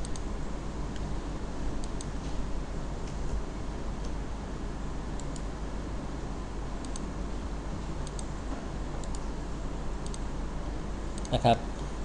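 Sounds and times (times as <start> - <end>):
computer mouse clicks: 0.0 - 0.3, 1.8 - 2.2, 5.2 - 5.5, 6.8 - 7.1, 8.0 - 8.3, 9.0 - 9.2, 10.0 - 10.3
low hum and hiss: 0.0 - 12.0.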